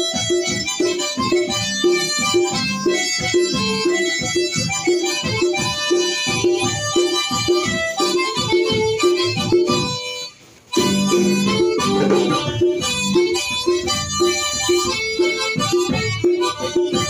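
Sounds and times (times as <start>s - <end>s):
acoustic guitar strumming: 0.0s - 17.0s
harmonica melody: 0.0s - 17.0s.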